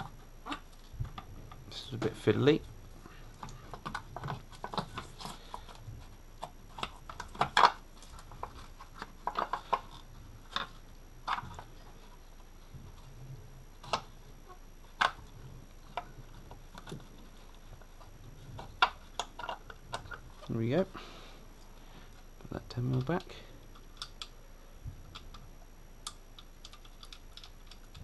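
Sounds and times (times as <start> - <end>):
plastic parts clicking and tapping: 14.9 - 20.4, 22.1 - 28.0.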